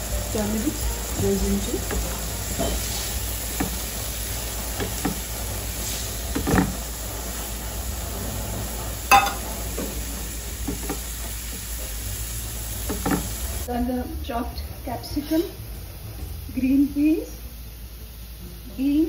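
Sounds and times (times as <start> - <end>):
onions sizzling in pan: 0.0 - 19.0
spatula scraping and knocking pan: 1.2 - 6.9, 9.1 - 12.0, 12.8 - 13.5.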